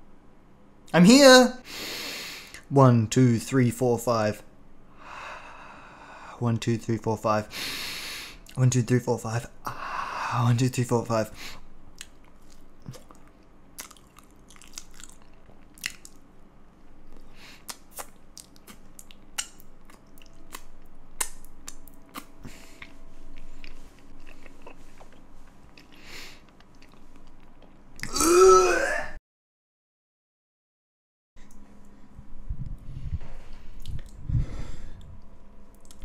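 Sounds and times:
crunchy chewing: 12.0s - 16.2s, 17.1s - 28.1s.

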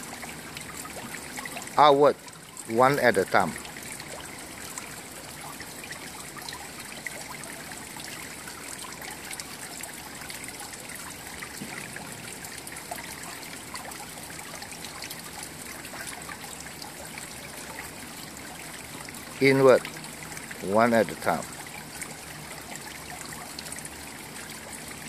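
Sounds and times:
trickle of running water: 0.0s - 25.0s.

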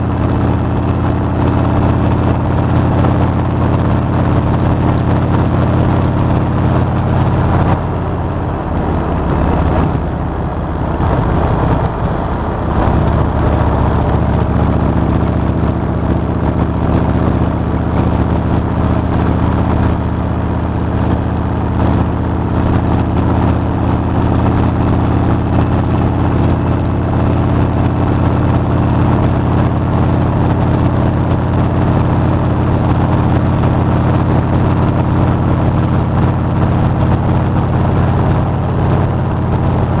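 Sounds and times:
motorcycle engine cruising: 0.0s - 40.0s
wind rush: 0.1s - 35.2s.

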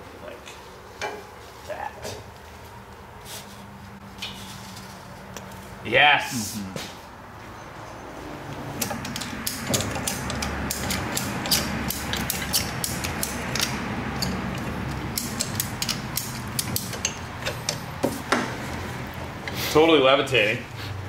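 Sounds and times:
ratchet strap clicking: 8.8s - 18.0s.

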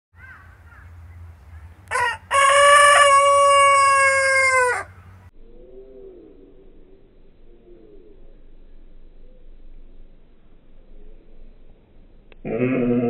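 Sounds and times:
rooster crowing: 1.9s - 5.1s.

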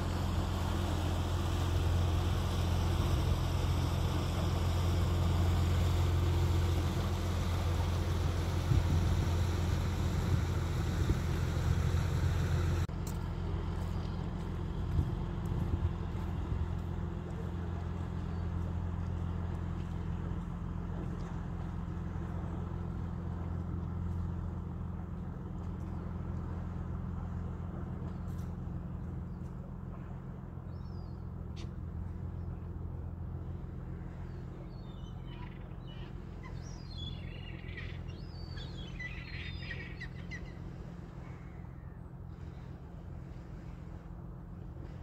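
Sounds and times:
boat diesel engine drone: 0.0s - 45.0s
birds chirping: 33.9s - 42.8s.

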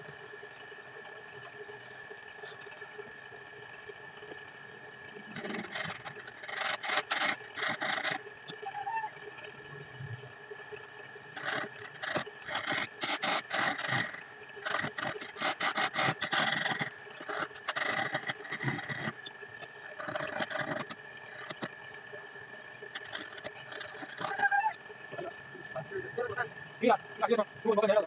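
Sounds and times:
chisel scraping spinning wood: 5.3s - 8.2s, 11.4s - 21.7s, 22.9s - 24.4s.

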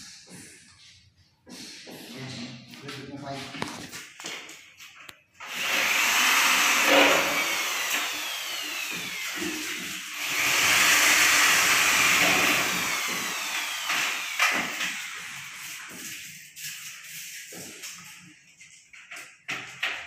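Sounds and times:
electric drill drilling metal: 5.4s - 15.6s.

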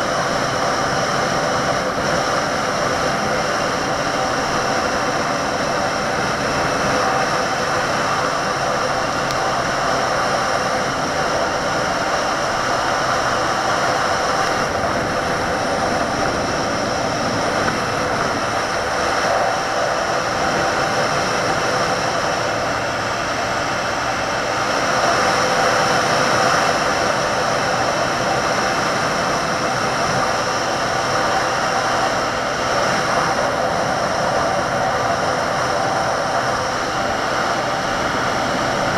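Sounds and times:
motorcycle engine running: 0.0s - 25.6s
wind rush: 0.0s - 38.9s.

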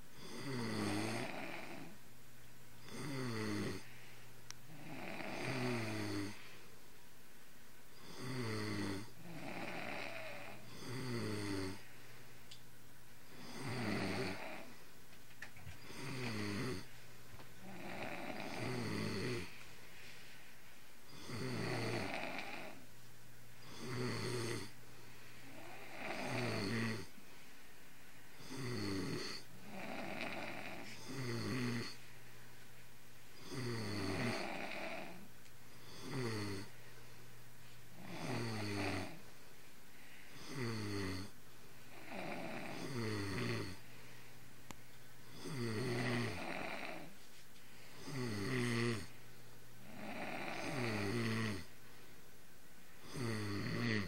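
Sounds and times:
boy snoring: 0.2s - 2.0s, 2.8s - 3.9s, 4.7s - 6.4s, 8.0s - 11.9s, 13.3s - 14.8s, 15.8s - 16.9s, 17.6s - 19.6s, 21.1s - 22.8s, 23.6s - 24.8s, 25.4s - 27.1s, 28.4s - 32.0s, 33.4s - 36.7s, 38.0s - 39.2s, 40.3s - 43.8s, 45.3s - 47.2s, 48.0s - 49.2s, 49.8s - 51.7s, 53.0s - 54.0s
man snoring: 0.2s - 2.0s, 2.8s - 3.9s, 4.7s - 6.5s, 8.0s - 11.9s, 13.3s - 14.8s, 15.8s - 16.9s, 17.6s - 19.6s, 21.1s - 22.8s, 23.6s - 24.8s, 25.4s - 27.1s, 28.4s - 32.0s, 33.4s - 36.8s, 38.0s - 39.2s, 40.3s - 43.8s, 45.2s - 47.1s, 48.0s - 49.2s, 49.8s - 51.7s, 53.0s - 54.0s.

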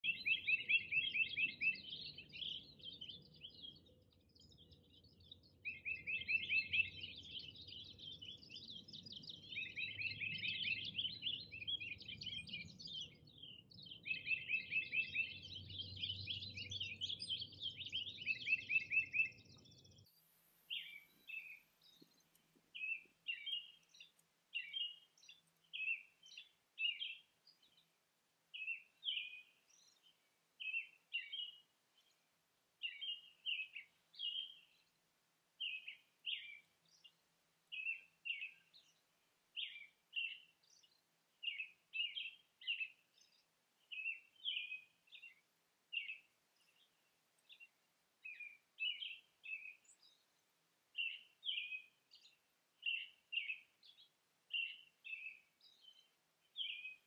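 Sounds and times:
songbirds singing: 0.0s - 57.0s
short bird chirps: 13.4s - 27.8s.

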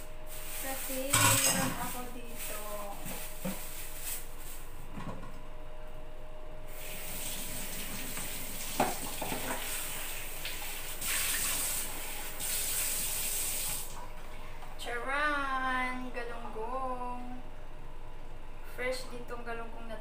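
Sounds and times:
tap running into steel sink: 8.0s - 9.7s.

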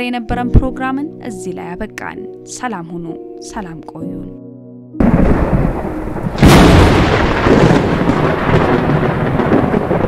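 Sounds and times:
heavy rain downpour: 5.0s - 10.0s
thunderclap: 5.0s - 10.0s.

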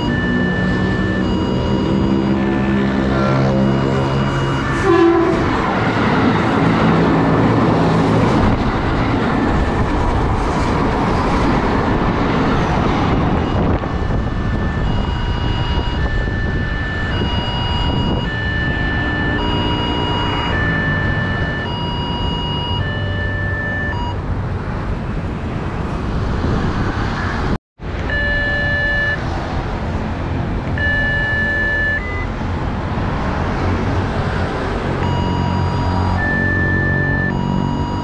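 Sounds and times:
level crossing alarm tones: 0.0s - 6.9s, 7.9s - 10.7s, 12.3s - 24.2s, 28.0s - 29.4s, 30.7s - 32.5s, 35.0s - 38.0s.

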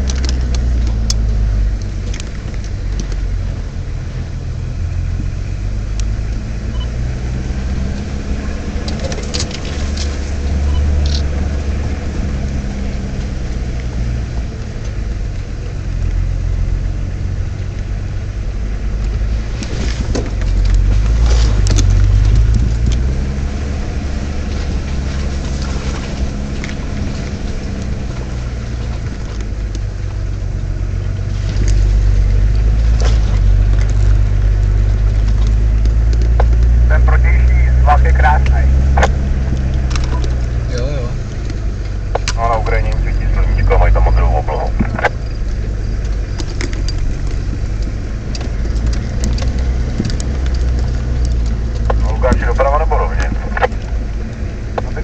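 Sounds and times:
vehicle clicks and knocks: 0.0s - 3.3s, 8.8s - 10.3s, 18.9s - 30.5s, 31.4s - 36.8s, 39.0s - 40.7s, 41.3s - 43.0s, 44.7s - 52.1s
diesel engine running: 0.0s - 55.0s.

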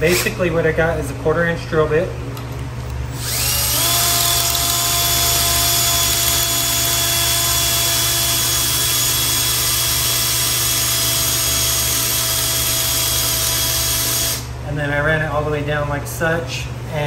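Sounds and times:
cordless drill motor whine: 3.1s - 14.5s
drill bit grinding grout: 3.2s - 14.4s.

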